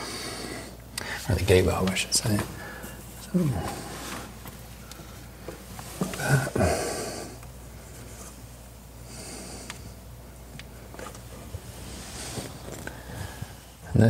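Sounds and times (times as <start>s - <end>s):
man breathing: 0.0s - 1.3s, 2.5s - 5.4s, 6.0s - 8.4s, 9.0s - 10.9s, 11.7s - 13.9s
man grunting: 6.2s - 7.0s.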